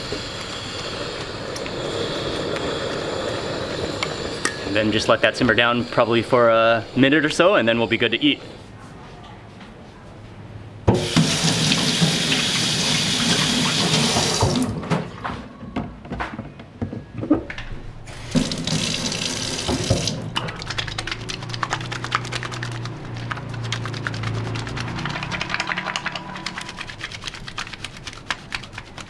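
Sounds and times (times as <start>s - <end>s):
tap water running into sink: 10.9s - 14.8s, 18.1s - 22.2s
wet hands rubbing together: 20.3s - 29.0s.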